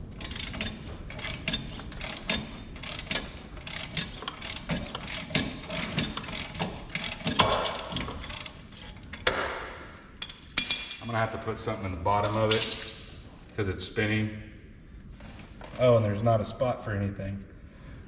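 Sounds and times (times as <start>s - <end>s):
metal clatter: 0.1s - 9.5s
ratchet wrench clicking: 0.2s - 9.3s.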